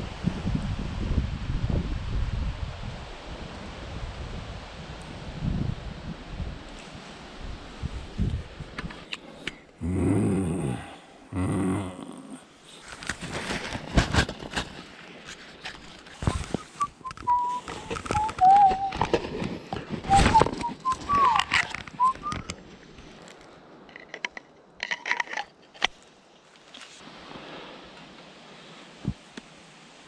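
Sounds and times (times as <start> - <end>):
person whistling a tune: 16.3 - 19.0, 20.1 - 22.5.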